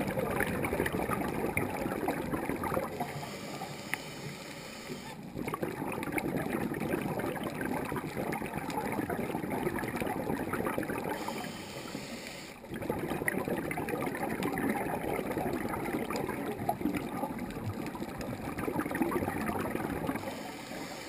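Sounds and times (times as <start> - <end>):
underwater bubbling and gurgling: 0.0 - 21.0.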